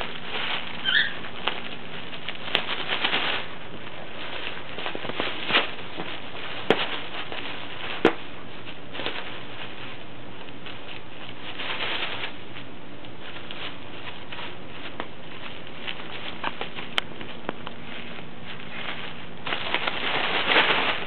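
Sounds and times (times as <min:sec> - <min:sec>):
bubble wrap crinkling: 0:00.0 - 0:21.0
bubble wrap pops: 0:00.0 - 0:21.0.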